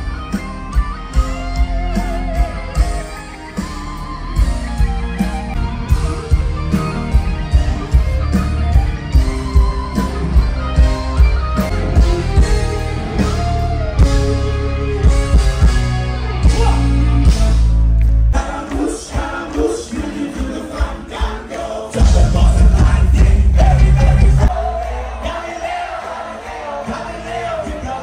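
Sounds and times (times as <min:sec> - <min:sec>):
electric guitar lead: 0:00.0 - 0:18.3
bass guitar: 0:00.0 - 0:18.4, 0:22.0 - 0:25.2
drums: 0:00.0 - 0:28.0.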